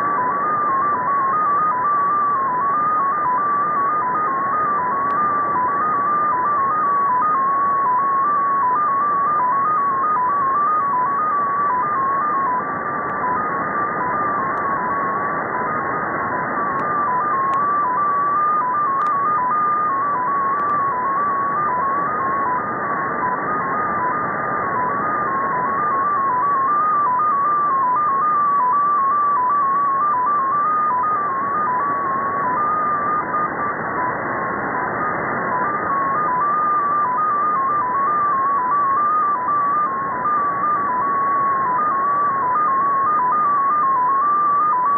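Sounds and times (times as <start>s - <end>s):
data signal tone hopping pitches: 0.0s - 44.9s
receiver hiss: 0.0s - 44.9s.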